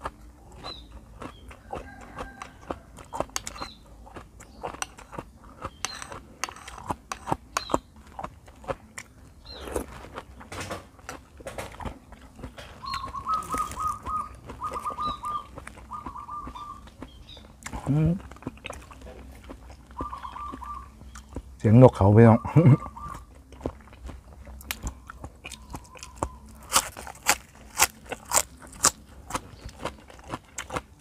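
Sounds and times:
wet chewing and mouth smacking: 0:00.0 - 0:21.6, 0:22.8 - 0:31.0
dove cooing: 0:12.6 - 0:17.0, 0:19.9 - 0:21.1, 0:22.2 - 0:23.3.

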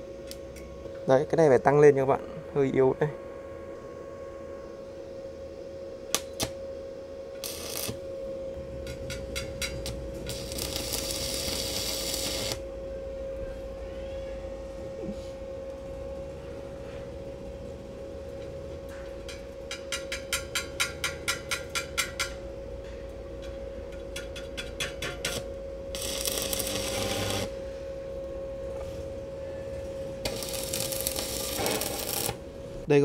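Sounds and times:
welder whine: 0:00.0 - 0:33.0
welding arc sizzling: 0:06.1 - 0:06.6, 0:07.4 - 0:08.0, 0:08.6 - 0:12.6, 0:24.2 - 0:27.6, 0:30.2 - 0:32.9
electrode tapping on steel: 0:08.7 - 0:12.6, 0:18.9 - 0:22.5, 0:23.4 - 0:27.5, 0:30.2 - 0:32.4.

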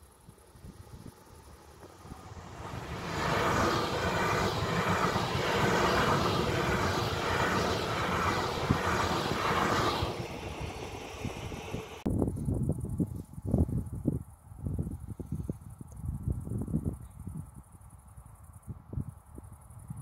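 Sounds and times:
train wheels on rails passing: 0:01.2 - 0:12.1.

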